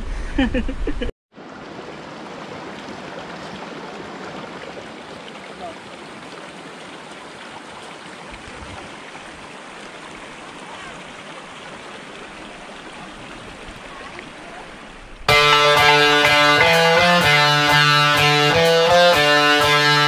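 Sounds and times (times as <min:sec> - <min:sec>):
loud guitar music: 0:15.3 - 0:20.0.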